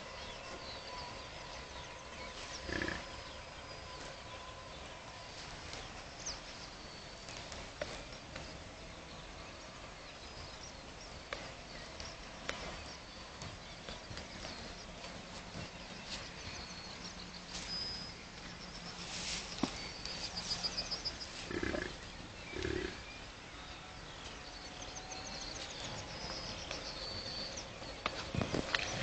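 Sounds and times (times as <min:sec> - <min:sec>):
birds chirping and trilling: 0:00.0 - 0:29.0
bison grunting: 0:02.6 - 0:03.1, 0:21.4 - 0:23.2.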